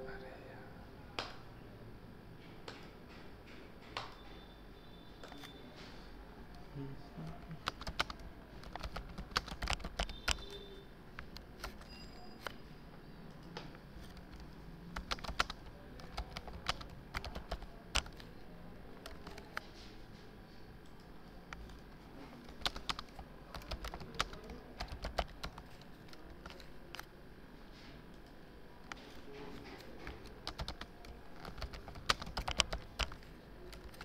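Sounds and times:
computer keyboard typing: 0:07.2 - 0:12.6, 0:13.3 - 0:19.7, 0:20.8 - 0:27.1, 0:28.2 - 0:34.0.

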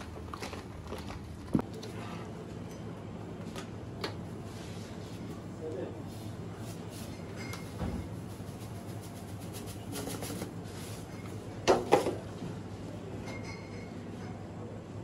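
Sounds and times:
breadcrumbs shaken into glass dish: 0:08.2 - 0:10.6.

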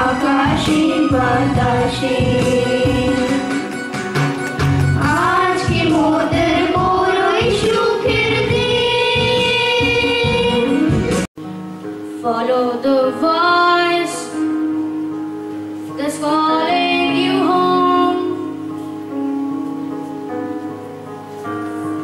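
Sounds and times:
children singing: 0:00.0 - 0:03.7, 0:05.0 - 0:10.8
held instrumental notes: 0:00.0 - 0:22.0
music: 0:00.0 - 0:22.0
child singing: 0:05.0 - 0:10.7, 0:16.0 - 0:18.4.

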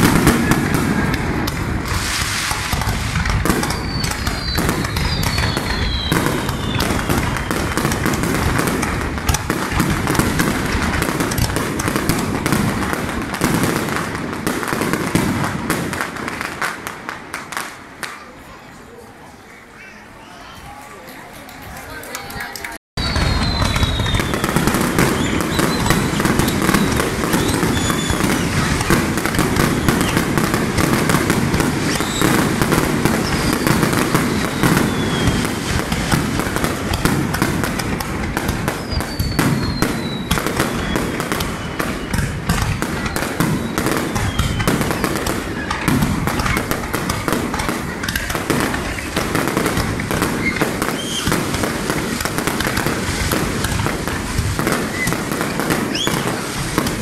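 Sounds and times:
fireworks bursts and crackling: 0:00.0 - 0:57.0
falling firework whistles: 0:01.8 - 0:08.2, 0:23.0 - 0:30.5, 0:31.1 - 0:37.1, 0:38.6 - 0:45.7, 0:48.7 - 0:57.0.

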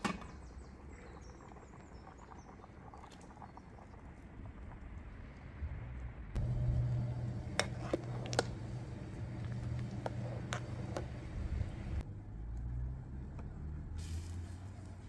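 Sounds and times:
steady low hum: 0:01.3 - 0:12.0.

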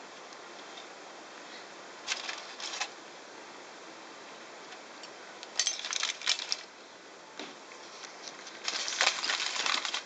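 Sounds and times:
aluminium foil crinkling: 0:02.0 - 0:03.0, 0:08.0 - 0:10.0.

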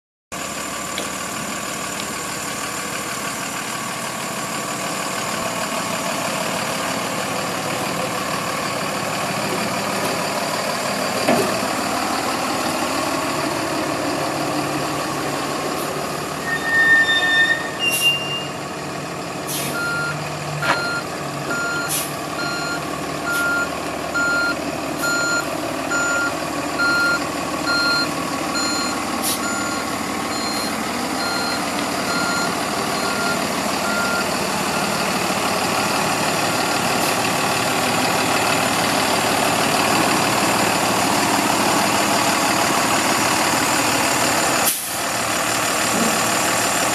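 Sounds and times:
diesel truck engine running: 0:00.3 - 0:46.9
backup alarm beeping: 0:19.8 - 0:35.1.

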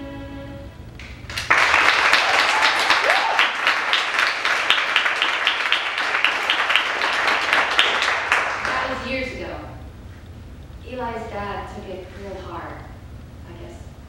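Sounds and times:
audience applause: 0:01.0 - 0:09.0
person cheering: 0:02.1 - 0:03.7.

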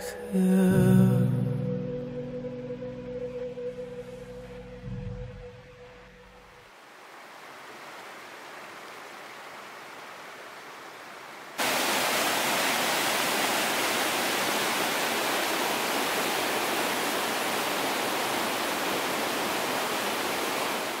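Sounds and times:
water running in stream: 0:06.7 - 0:21.0
white-water rapids rushing: 0:11.6 - 0:21.0.

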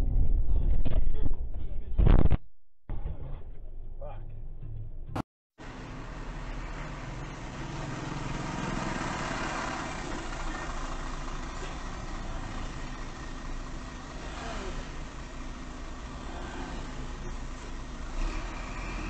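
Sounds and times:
car engine idling: 0:05.6 - 0:18.3
vehicles driving past: 0:05.6 - 0:19.0.

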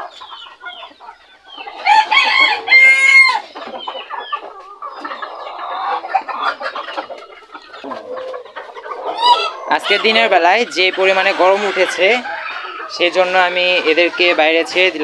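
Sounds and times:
chickens clucking: 0:00.0 - 0:15.0
rooster crowing: 0:01.8 - 0:03.5.

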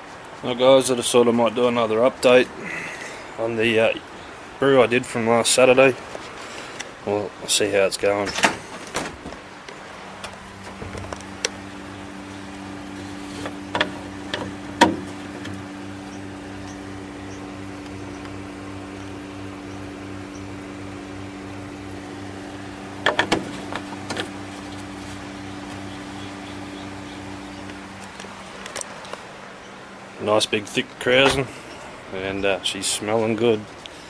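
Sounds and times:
fridge humming: 0:08.1 - 0:34.0.

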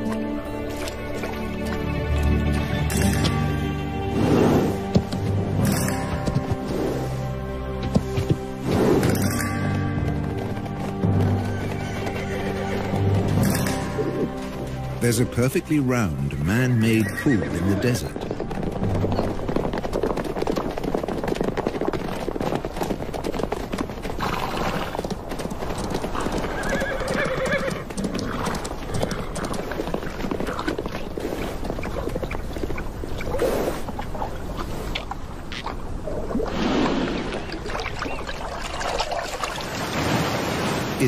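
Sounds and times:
hooves clattering on hard ground: 0:00.0 - 0:36.0
horse whinnying: 0:11.3 - 0:13.4, 0:16.8 - 0:18.2, 0:24.2 - 0:25.0, 0:26.1 - 0:29.5
water splashing and dripping: 0:35.6 - 0:41.0.

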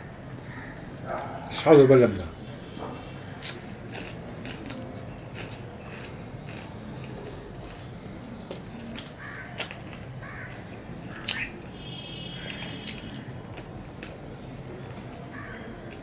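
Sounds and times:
wet chewing: 0:02.9 - 0:11.7, 0:12.8 - 0:15.2
mouth smacks: 0:11.1 - 0:11.6.

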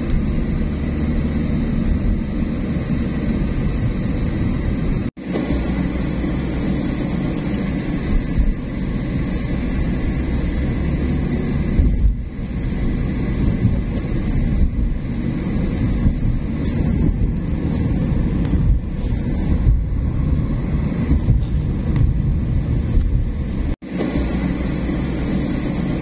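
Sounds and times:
car rumbling: 0:00.0 - 0:26.0
wind buffeting microphone: 0:05.7 - 0:23.8.

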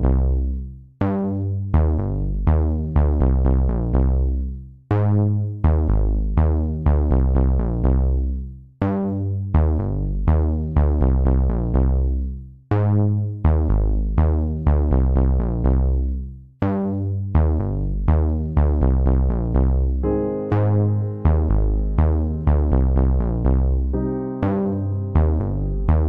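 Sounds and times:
heavy bass: 0:00.0 - 0:26.0
synthesizer notes: 0:20.0 - 0:26.0.

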